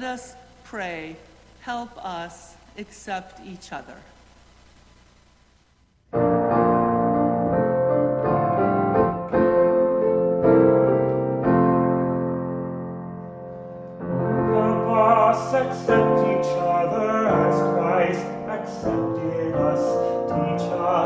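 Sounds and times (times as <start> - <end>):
grand piano playing chords: 6.1 - 21.0.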